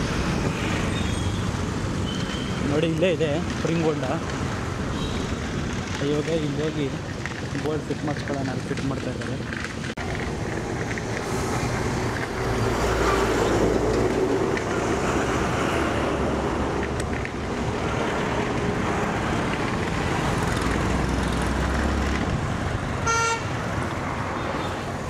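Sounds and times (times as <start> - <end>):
passing vehicles rumbling: 0.0 - 25.0
road traffic noise: 0.0 - 25.0
vehicle horn beep: 4.9 - 5.3, 23.0 - 23.5.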